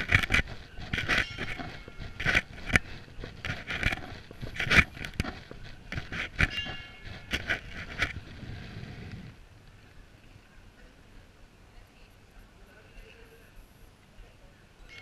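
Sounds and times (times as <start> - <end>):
footstep squeak: 0.0 - 8.2
gritty crunching footsteps: 0.0 - 8.9.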